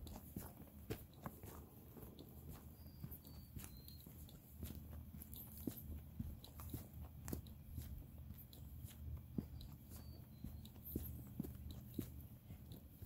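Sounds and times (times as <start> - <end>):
footsteps crunching on trail: 0.0 - 13.0.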